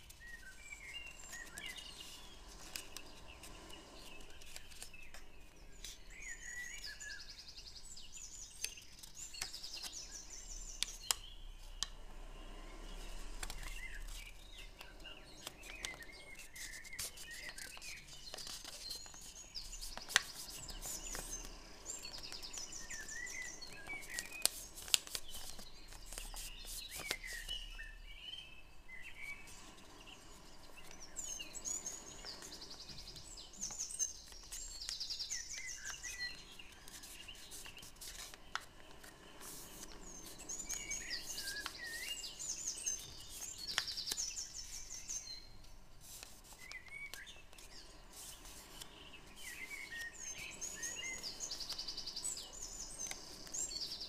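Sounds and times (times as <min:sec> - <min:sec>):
small birds chirping: 0:00.0 - 0:54.0
paper being creased and folded: 0:01.3 - 0:06.0, 0:12.9 - 0:27.6, 0:32.0 - 0:42.1, 0:42.9 - 0:44.8, 0:46.0 - 0:50.2.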